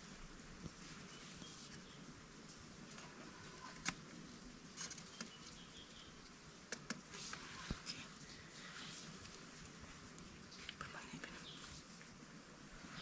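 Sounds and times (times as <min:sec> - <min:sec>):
quiet forest background: 0:00.0 - 0:13.0
bamboo strip clicks and taps: 0:06.7 - 0:07.0.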